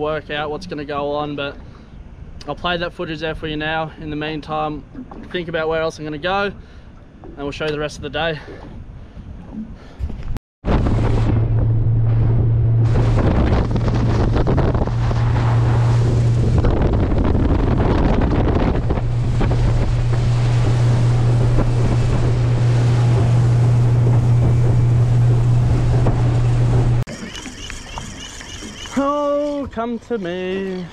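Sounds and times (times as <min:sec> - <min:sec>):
motorboat engine hum: 0:04.6 - 0:30.9
wind buffeting microphone: 0:08.0 - 0:27.0
water rushing: 0:12.6 - 0:30.9.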